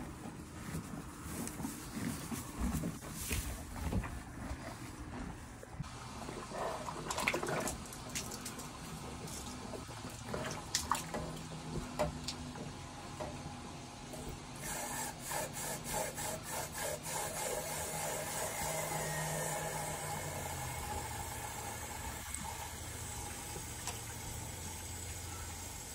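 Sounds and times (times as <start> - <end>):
horse gulping: 0.1 - 12.4
horse slurping water: 5.8 - 12.4, 17.2 - 25.9.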